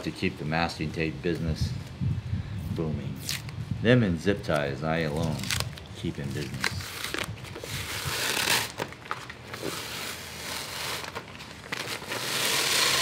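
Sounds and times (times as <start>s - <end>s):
tape ripping and crackling: 3.2s - 3.6s, 4.5s - 13.0s.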